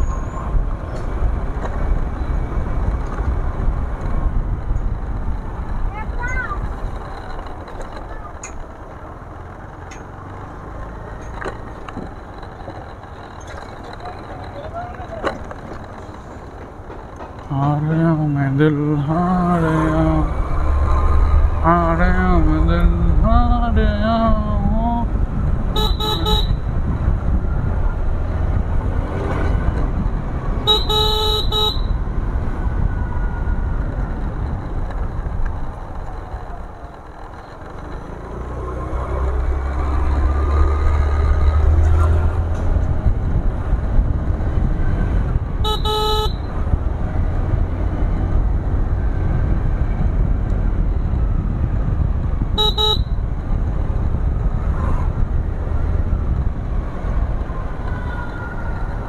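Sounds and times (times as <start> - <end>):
motorbike engine rumble: 0.0 - 59.0
wind: 0.0 - 59.0
vehicle horn honking: 25.7 - 26.7, 30.6 - 32.0, 45.6 - 46.6, 52.6 - 53.2.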